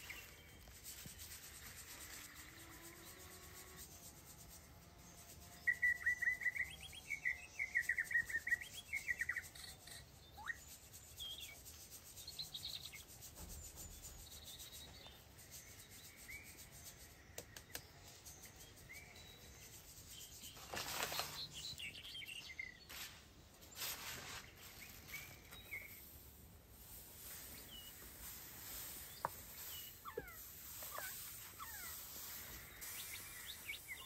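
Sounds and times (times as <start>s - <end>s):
small bird chirping: 0.0s - 3.8s, 5.5s - 34.0s
faint rubbing noise: 0.0s - 34.0s.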